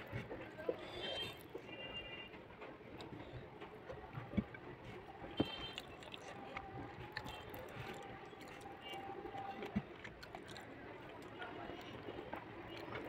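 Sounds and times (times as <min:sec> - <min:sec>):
chewing: 0:03.0 - 0:13.0.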